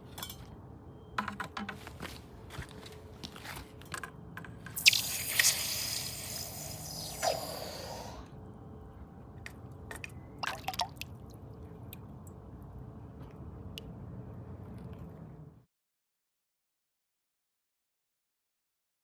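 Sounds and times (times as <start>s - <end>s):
water drips: 4.8s - 7.8s, 9.4s - 12.4s.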